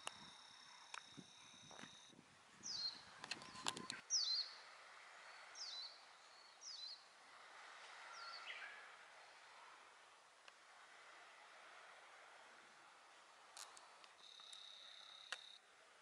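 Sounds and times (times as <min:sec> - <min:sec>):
small bird chirping: 0:00.0 - 0:04.6, 0:05.2 - 0:07.1, 0:13.6 - 0:15.6
outdoor background noise: 0:00.0 - 0:16.0.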